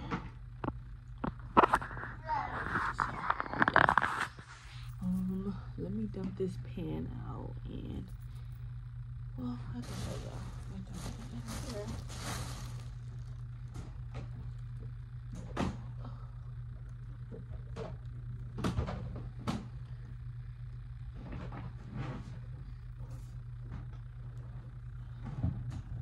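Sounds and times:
steady low hum: 0:00.0 - 0:26.0
plastic bag rustling: 0:09.7 - 0:13.7.

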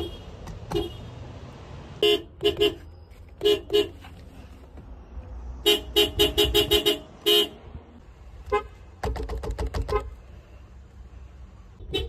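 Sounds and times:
car horn short toots: 0:00.0 - 0:01.1, 0:02.0 - 0:04.0, 0:05.6 - 0:07.6, 0:11.8 - 0:12.0.

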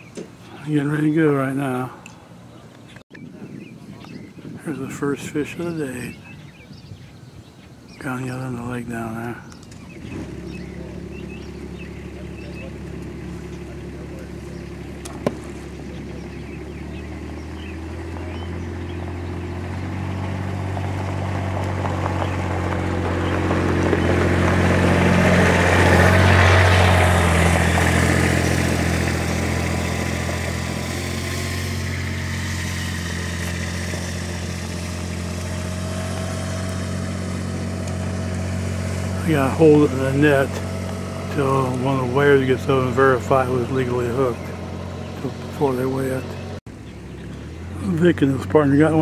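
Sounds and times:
vehicle engine humming: 0:00.0 - 0:03.2, 0:07.7 - 0:49.0.

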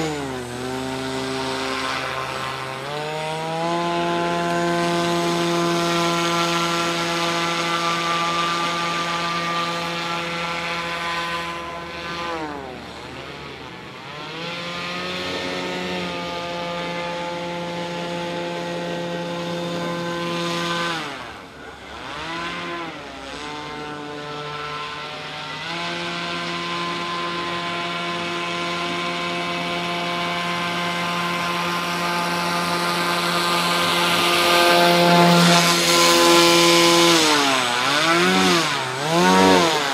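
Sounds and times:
electric motor and propeller drone: 0:00.0 - 0:39.9.

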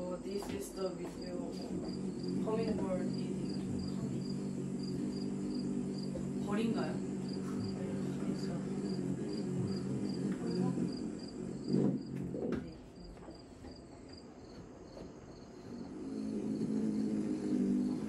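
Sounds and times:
faint high insect chirp: 0:00.0 - 0:18.0
hummingbird wings humming: 0:00.0 - 0:18.0.

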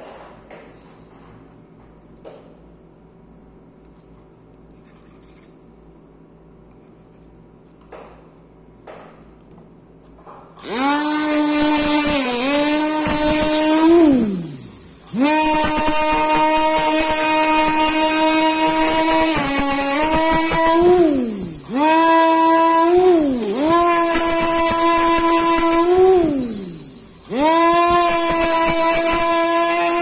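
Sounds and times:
dental handpiece high whine: 0:10.6 - 0:30.0.

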